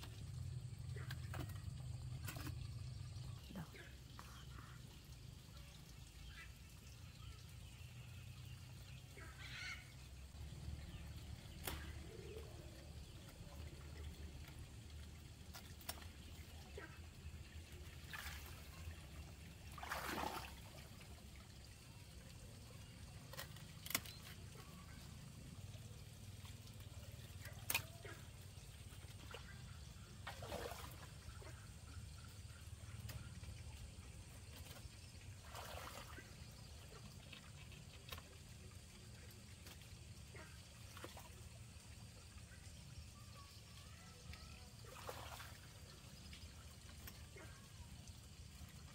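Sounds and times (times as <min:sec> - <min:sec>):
faint low outdoor rumble: 0:00.0 - 0:48.9
leaves and basket rustling: 0:23.1 - 0:25.1.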